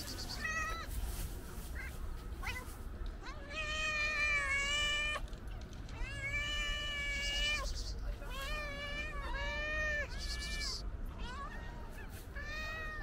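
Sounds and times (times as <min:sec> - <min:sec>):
cat meowing loudly: 0:06.0 - 0:07.7, 0:08.3 - 0:13.0.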